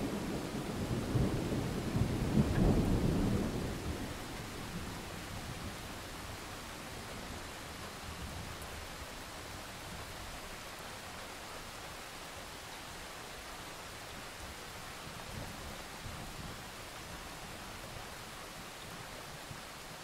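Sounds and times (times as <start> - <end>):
thunder rumbling: 0.0 - 5.9
steady rain: 0.0 - 20.0.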